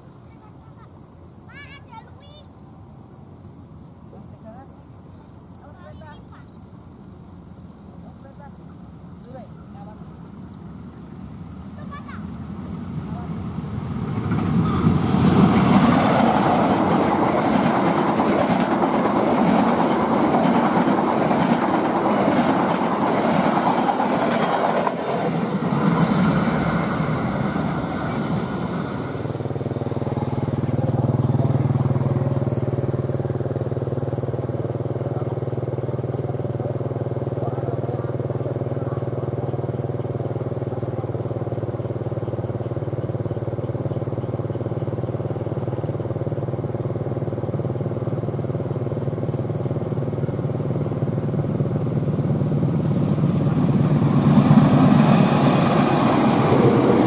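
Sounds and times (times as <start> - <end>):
train wheels clattering on rails: 14.0 - 48.5, 49.2 - 57.0.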